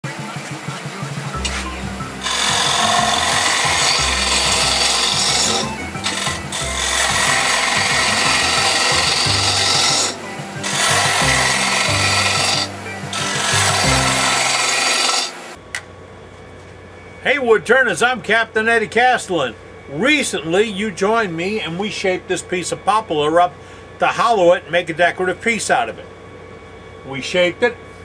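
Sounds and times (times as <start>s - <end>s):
low hum: 1.4s - 16.1s
lathe tool scraping wood: 1.5s - 15.6s.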